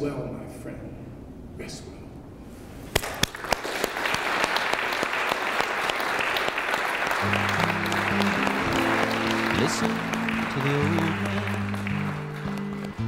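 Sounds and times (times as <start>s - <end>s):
audience applauding: 3.0s - 13.0s
instrumental music: 7.1s - 13.0s.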